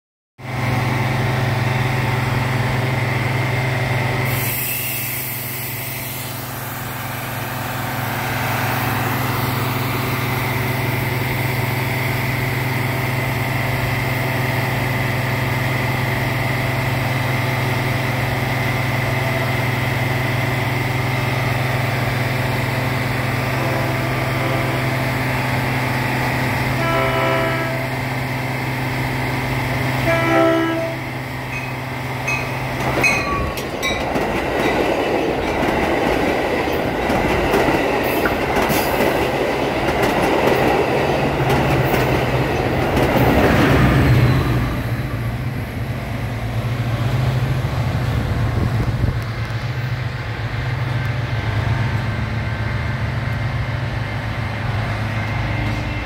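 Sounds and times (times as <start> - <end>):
distant train horn: 23.3 - 25.2, 26.6 - 28.2, 29.9 - 31.7, 55.2 - 56.0.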